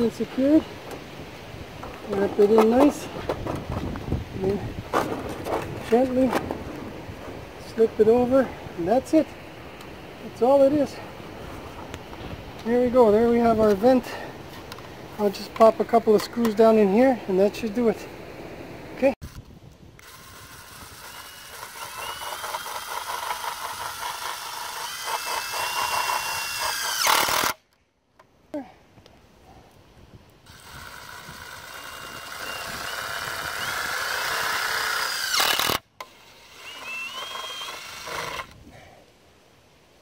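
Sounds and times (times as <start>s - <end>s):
impact driver motor whine: 20.0s - 27.6s, 30.5s - 38.6s.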